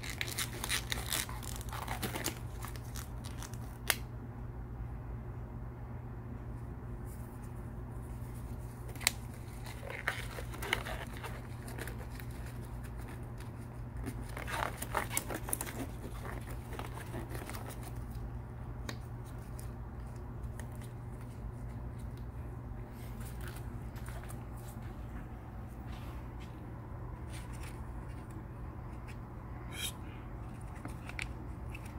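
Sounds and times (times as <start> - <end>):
gloves crinkling and rustling: 0.0 - 4.0, 8.1 - 25.8
steady low hum: 0.0 - 31.9.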